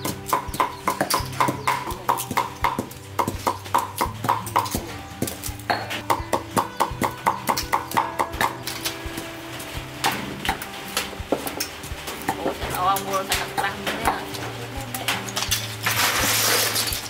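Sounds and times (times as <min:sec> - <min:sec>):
cleaver chopping: 0:00.0 - 0:08.8.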